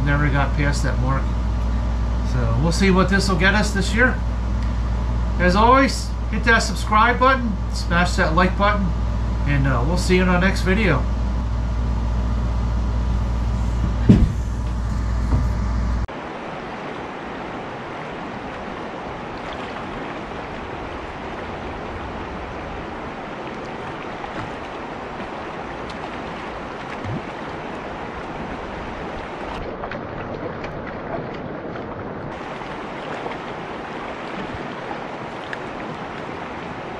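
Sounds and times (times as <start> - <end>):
air conditioner humming: 0.0 - 16.3
thumps: 13.6 - 16.0
stream flowing: 16.0 - 36.9.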